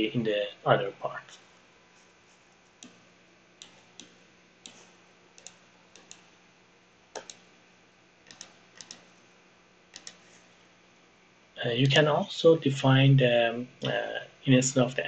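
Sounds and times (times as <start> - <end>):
faint steady hum: 0.0 - 15.0
computer mouse clicks: 2.8 - 3.0, 3.6 - 6.3, 7.1 - 7.5, 8.3 - 9.2, 9.9 - 10.5.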